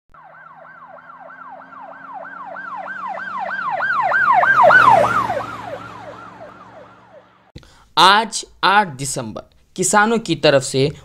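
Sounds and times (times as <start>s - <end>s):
electronic siren yelping: 0.1s - 7.5s.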